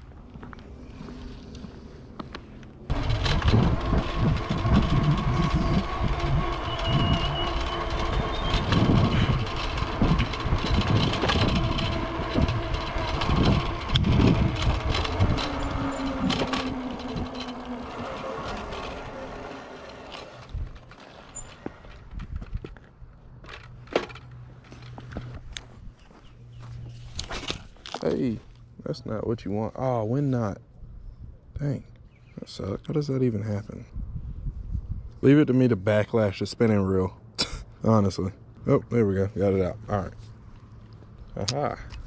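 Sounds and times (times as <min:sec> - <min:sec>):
wind buffeting microphone: 0:02.9 - 0:19.7, 0:20.3 - 0:21.0, 0:21.6 - 0:23.1, 0:33.8 - 0:35.3
electric motor whine: 0:02.9 - 0:22.0.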